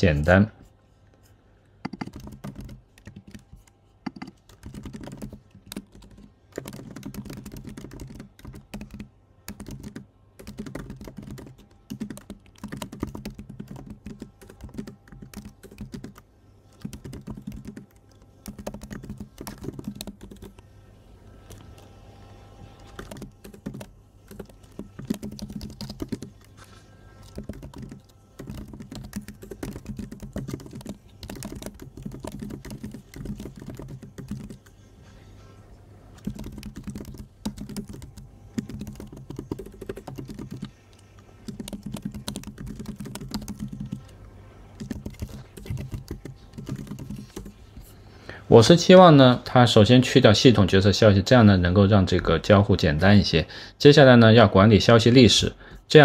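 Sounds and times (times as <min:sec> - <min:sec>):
computer keyboard typing: 0:01.8 - 0:20.6, 0:22.7 - 0:34.8, 0:36.2 - 0:44.2, 0:44.8 - 0:47.6.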